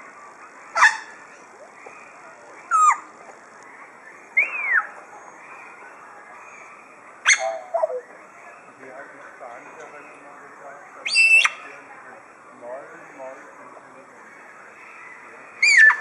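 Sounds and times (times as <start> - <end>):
parrot whistling and squawking: 2.7 - 3.0, 4.4 - 4.9, 7.2 - 8.0, 11.0 - 11.6, 15.6 - 16.0.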